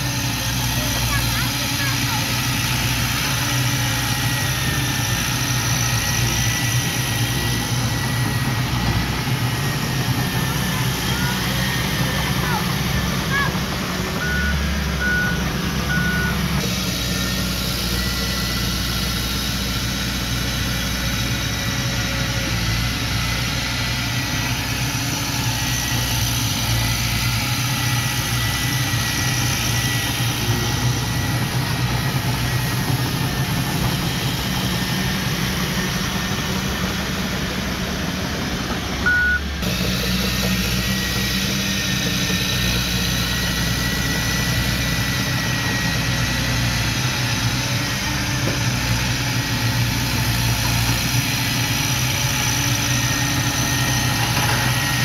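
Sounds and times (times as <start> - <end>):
bulldozer diesel engine running: 0.0 - 55.0
short high beep: 39.1 - 39.6.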